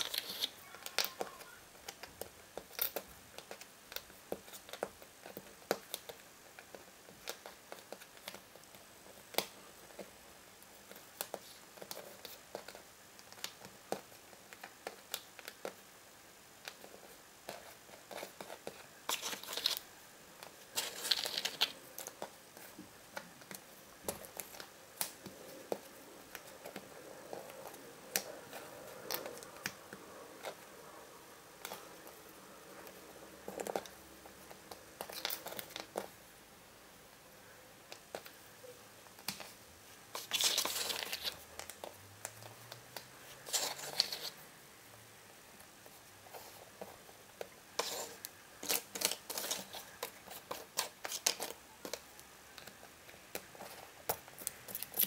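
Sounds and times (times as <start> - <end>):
rustling: 16.6 - 36.3, 37.8 - 44.5, 45.6 - 55.0.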